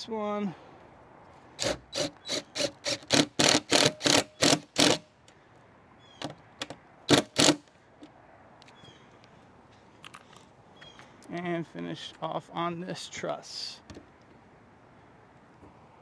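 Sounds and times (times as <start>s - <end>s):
cordless drill driving screws: 1.6s - 5.0s.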